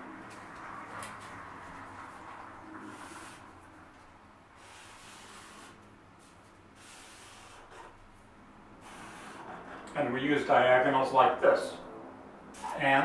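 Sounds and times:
marker drawing on paper: 6.8s - 8.0s.

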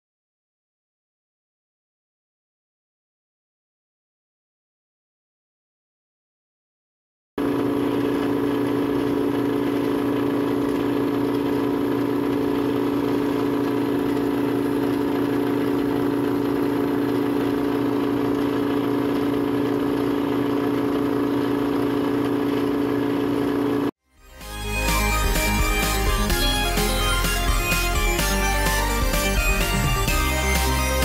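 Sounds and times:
electric motor humming: 7.4s - 23.9s, 24.5s - 31.0s.

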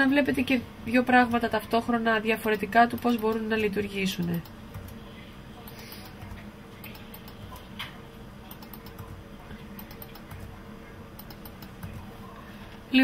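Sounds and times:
low background hum: 0.0s - 13.0s
computer mouse clicking: 2.5s - 3.5s, 5.7s - 9.1s, 9.7s - 10.6s, 11.2s - 12.1s.

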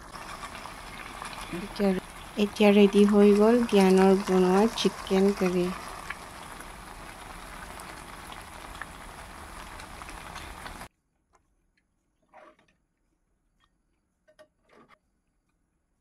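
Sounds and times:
curry bubbling in a pot: 0.0s - 10.9s.

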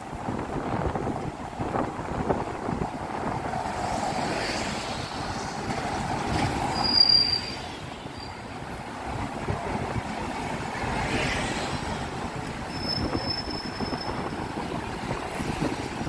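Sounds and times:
train rumbling: 0.0s - 16.0s
high wheel squeal: 5.3s - 8.6s, 12.5s - 15.8s.

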